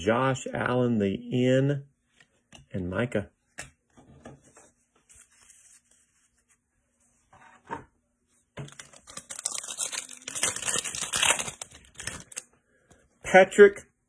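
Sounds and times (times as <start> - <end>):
foil wrapper tearing and crinkling: 8.7 - 12.4.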